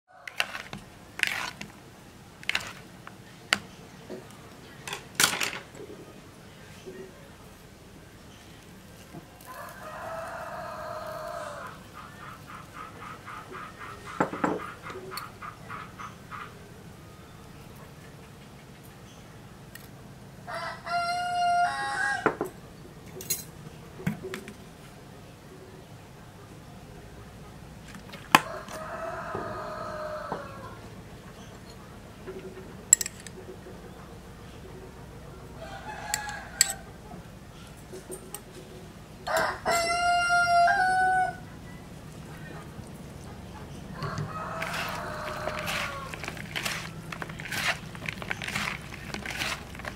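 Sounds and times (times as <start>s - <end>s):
rooster crowing: 0.1s - 0.6s, 9.4s - 11.9s, 20.4s - 22.4s, 28.4s - 30.8s, 35.6s - 37.0s, 39.2s - 41.5s, 43.9s - 47.7s.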